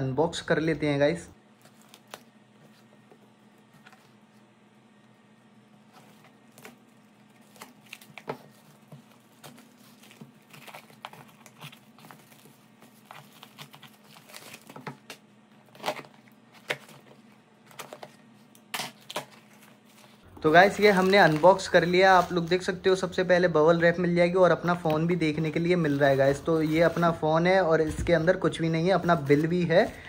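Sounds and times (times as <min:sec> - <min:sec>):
plastic wrapping crinkling and tearing: 0:01.6 - 0:02.4, 0:05.9 - 0:22.5.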